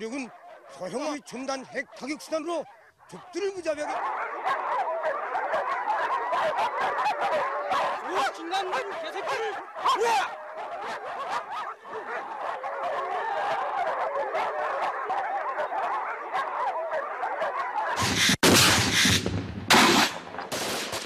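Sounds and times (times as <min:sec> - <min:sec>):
many high calls: 0:00.0 - 0:18.3
machine-gun fire: 0:18.0 - 0:21.0.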